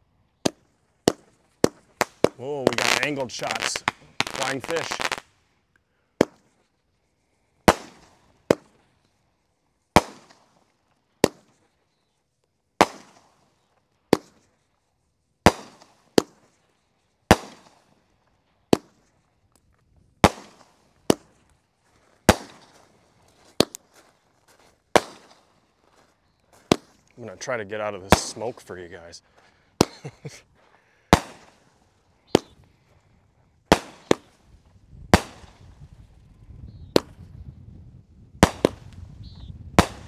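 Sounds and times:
firework cake bangs with hiss: 7.7 - 8.7, 10.0 - 10.4, 12.8 - 13.3, 31.1 - 31.6, 33.7 - 34.4, 38.4 - 39.0, 39.8 - 40.0.

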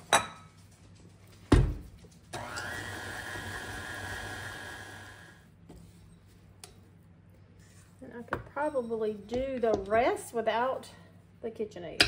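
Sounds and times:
stand mixer motor whine: 2.4 - 5.4.

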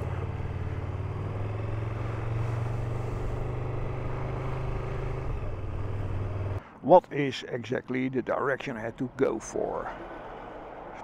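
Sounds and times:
motorcycle engine droning: 0.0 - 6.6.

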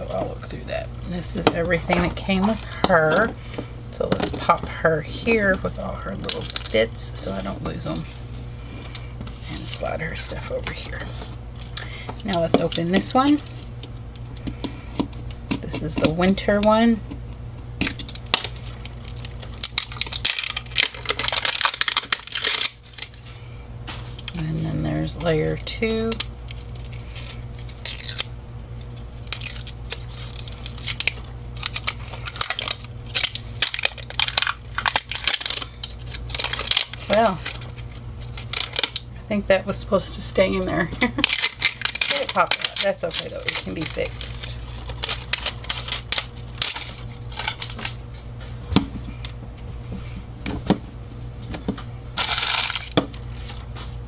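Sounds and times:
steady low hum: 0.0 - 54.0
plastic wrapping crinkling and tearing: 6.2 - 8.2, 17.8 - 23.4, 25.5 - 39.1, 40.9 - 48.2, 52.2 - 54.0.

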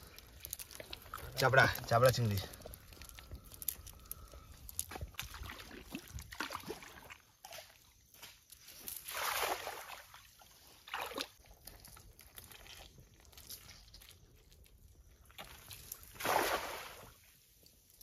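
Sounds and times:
water sloshing and splashing: 0.0 - 14.1, 15.2 - 17.5
cast net splashing onto water: 9.0 - 11.4, 15.4 - 17.3.

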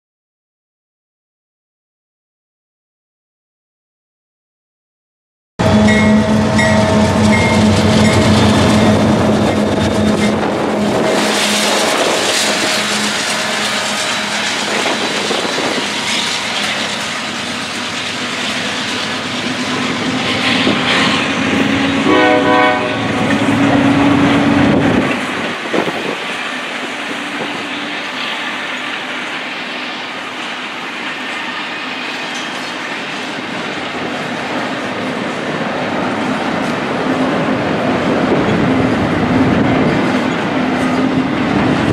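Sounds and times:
multi-pitch train horn: 5.6 - 17.1, 19.7 - 25.0
diesel locomotive engine hum: 5.6 - 41.9
train cars rumbling and clattering: 5.6 - 41.9.

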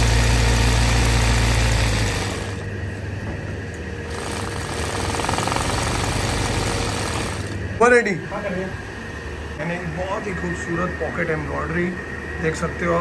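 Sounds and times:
embroidery machine running: 0.0 - 3.1, 3.8 - 8.0
deep motor hum: 0.0 - 7.8.

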